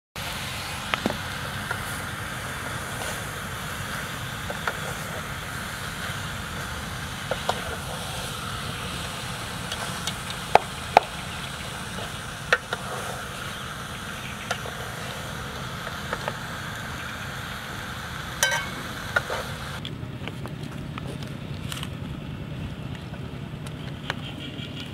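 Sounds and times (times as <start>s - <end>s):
background hiss: 0.2s - 19.8s.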